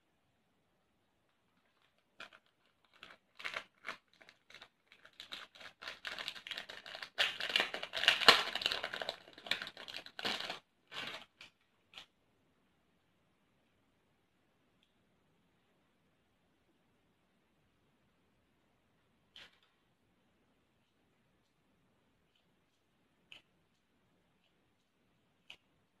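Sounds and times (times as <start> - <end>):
plastic packet crinkling: 1.5 - 11.5.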